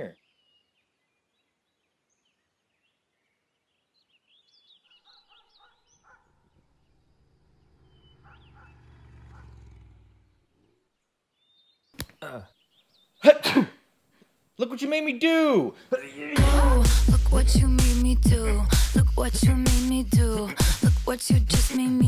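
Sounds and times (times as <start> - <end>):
faint bird chirps: 0.0 - 13.3.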